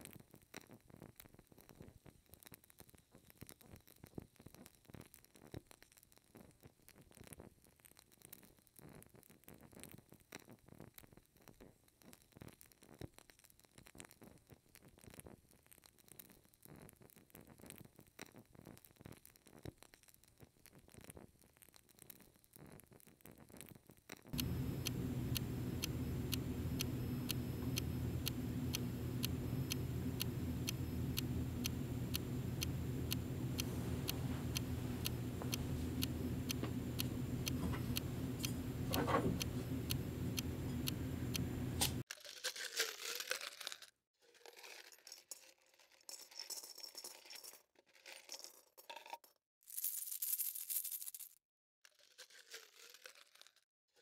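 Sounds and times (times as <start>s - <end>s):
low steady hum: 24.4s - 42.0s
regular ticks: 24.4s - 42.0s
coins clinking: 49.7s - 51.4s.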